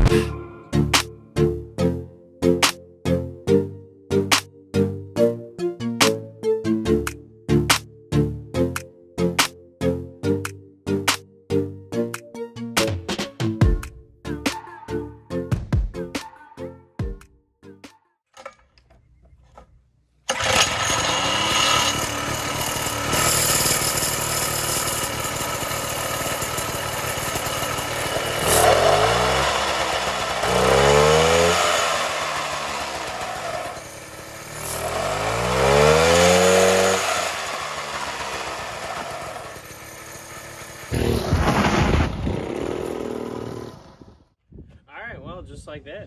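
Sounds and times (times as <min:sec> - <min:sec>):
two-stroke engine revving: 0:20.3 - 0:44.2.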